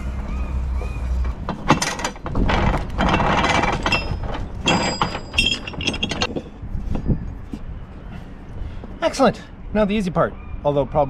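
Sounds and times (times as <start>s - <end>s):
anchor chain clattering through windlass: 1.4s - 6.6s.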